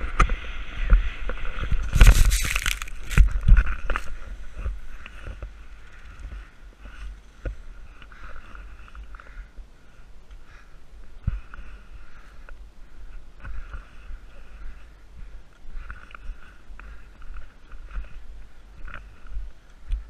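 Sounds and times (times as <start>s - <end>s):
wind rumble on microphone: 0.0s - 7.9s
skier tumbling into snow: 1.7s - 4.1s
shuffling in snow: 1.8s - 4.5s.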